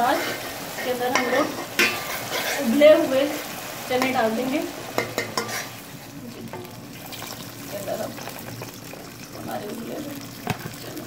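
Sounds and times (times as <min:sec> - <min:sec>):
masala sizzling in oil: 0:00.0 - 0:11.0
metal spoon scraping steel pot: 0:05.2 - 0:05.8.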